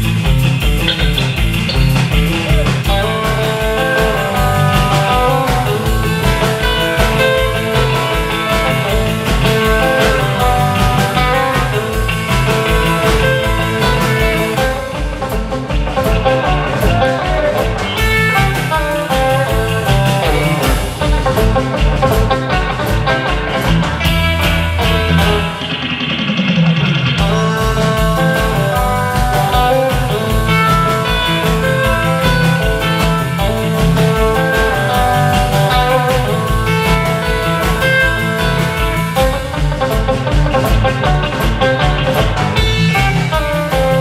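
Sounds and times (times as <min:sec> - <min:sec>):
drum beat: 0:00.0 - 0:44.0
lead guitar melody: 0:00.0 - 0:44.0
surf rock band playing: 0:00.0 - 0:44.0.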